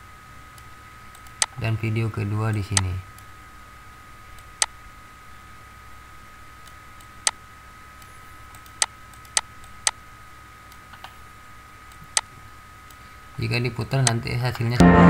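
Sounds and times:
computer mouse clicking: 0:00.6 - 0:01.6, 0:08.0 - 0:10.0.

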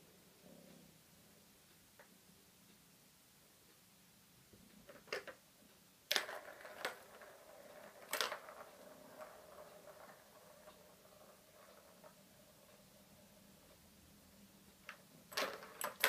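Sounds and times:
ball running round plastic track: 0:04.8 - 0:05.4, 0:06.0 - 0:16.0.

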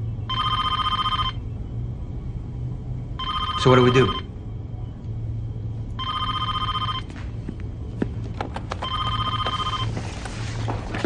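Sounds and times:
electronic telephone ringing: 0:00.3 - 0:01.4, 0:03.2 - 0:04.3, 0:06.0 - 0:07.1, 0:08.8 - 0:10.0.

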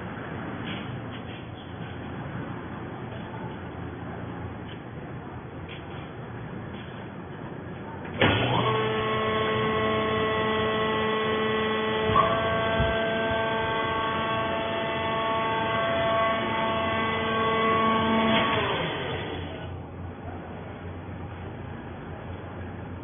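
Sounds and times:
hydraulic pump motor hum-whine: 0:08.0 - 0:23.0.

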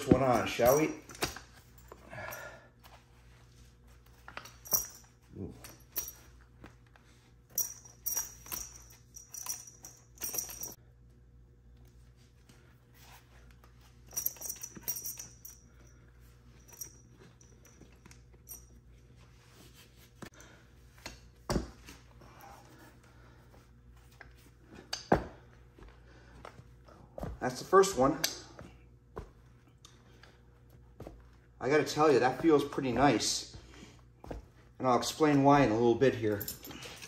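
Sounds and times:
metal buckles clinking: 0:00.0 - 0:03.0, 0:03.9 - 0:10.8, 0:13.0 - 0:19.2, 0:27.2 - 0:37.0.

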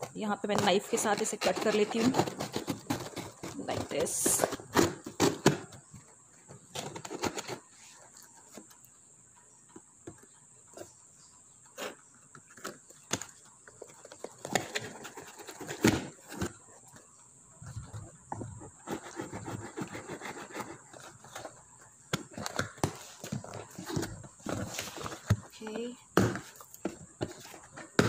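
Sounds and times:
cardboard rustling and tapping: 0:00.0 - 0:07.7, 0:19.7 - 0:28.0.

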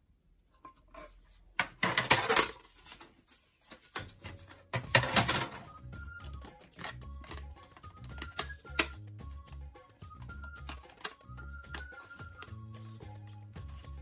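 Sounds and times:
plastic panels clicking and clattering: 0:01.6 - 0:03.0, 0:03.8 - 0:09.1, 0:09.9 - 0:12.5.

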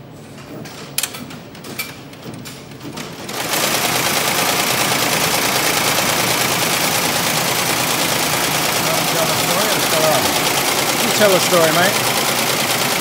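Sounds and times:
machine clicks: 0:00.4 - 0:13.0
embroidery machine stitching: 0:02.9 - 0:13.0.

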